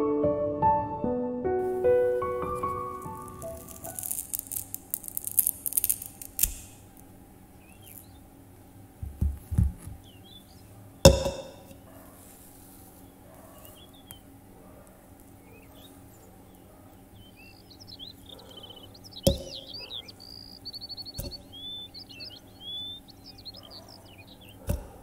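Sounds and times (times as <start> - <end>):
banana crackling and rustling: 1.7 - 8.2
faint bird chirps: 7.6 - 8.3, 15.4 - 25.0.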